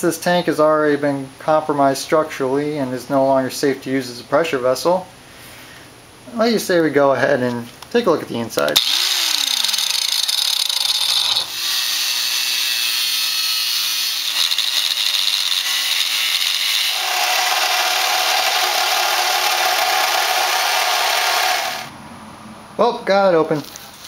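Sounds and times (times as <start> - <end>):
angle grinder cutting steel: 8.8 - 21.9
reciprocating saw cutting steel: 8.8 - 21.9.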